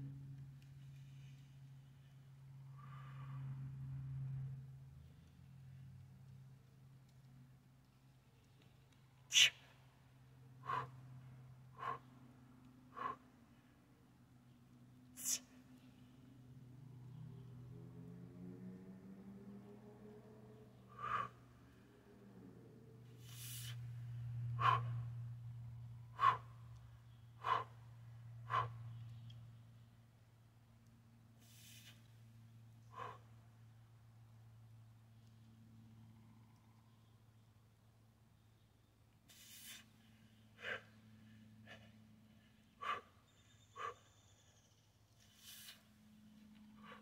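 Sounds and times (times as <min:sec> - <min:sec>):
faint low hum: 0:00.0 - 0:47.0
man exhaling sharply: 0:09.3 - 0:09.6
man's sharp breaths: 0:09.3 - 0:09.8, 0:10.6 - 0:13.7, 0:15.2 - 0:15.7, 0:20.9 - 0:21.7, 0:23.1 - 0:25.3, 0:26.1 - 0:29.2, 0:32.8 - 0:33.5, 0:39.3 - 0:44.3, 0:46.7 - 0:47.0.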